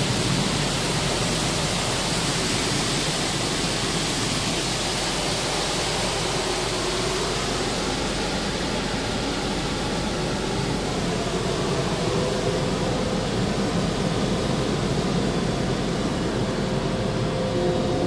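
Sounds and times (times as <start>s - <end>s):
car wash machinery hissing: 0.0s - 18.0s.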